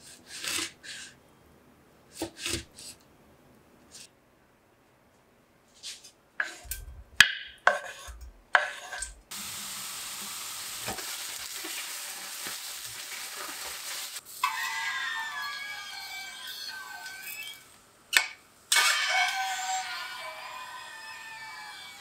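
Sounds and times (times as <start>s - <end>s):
steady sizzle: 9.3s - 14.6s.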